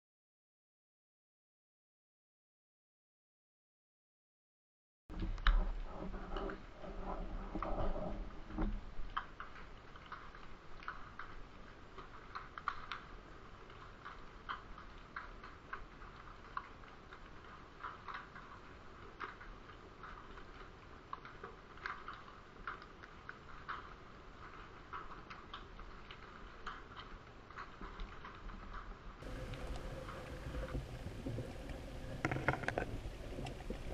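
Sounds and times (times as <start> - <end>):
underwater crackling clicks: 13.7 - 33.9
low hiss: 29.2 - 33.9.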